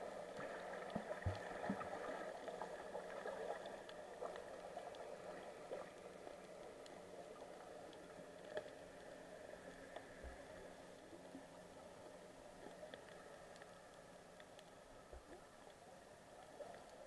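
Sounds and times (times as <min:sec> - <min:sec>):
faint steady hum: 0:00.0 - 0:17.0
water moving underwater: 0:00.0 - 0:17.0
light clicks: 0:12.6 - 0:15.8.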